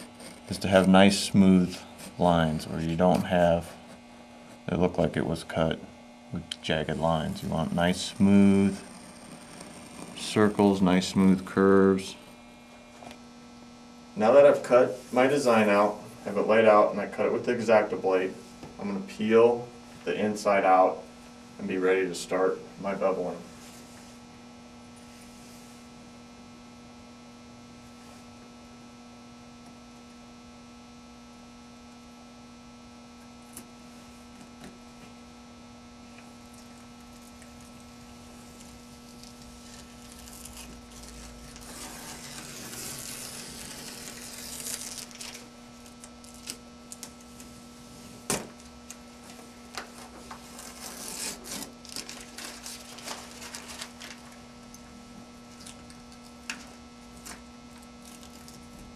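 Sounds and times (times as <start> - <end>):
electrical mains hum: 0.0 - 58.9
tape peeling off crackling: 7.4 - 10.6, 36.4 - 47.5, 49.8 - 54.4, 55.5 - 58.8.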